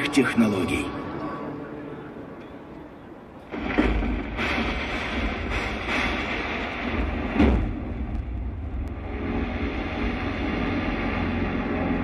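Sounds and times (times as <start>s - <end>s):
deep rumbling sound effect: 3.5s - 12.0s.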